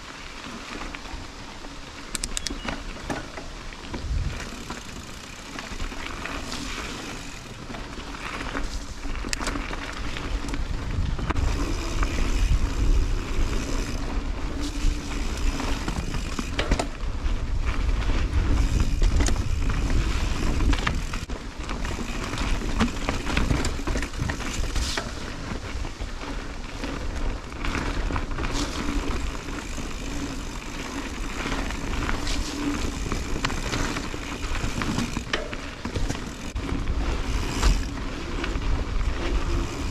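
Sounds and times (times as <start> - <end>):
bike tyres rolling over dirt: 0.0 - 39.9
bike knocking and rattling: 0.1 - 39.9
wind rumble on microphone: 3.9 - 4.8, 10.0 - 29.4.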